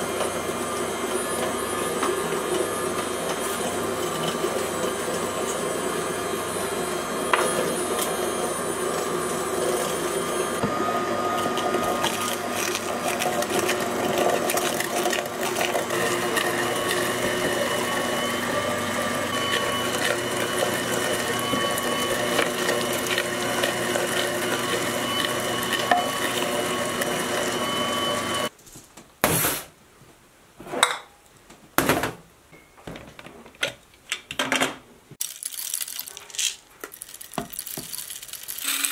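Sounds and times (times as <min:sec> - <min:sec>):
electric meat grinder motor: 0:00.0 - 0:28.5, 0:38.6 - 0:38.9.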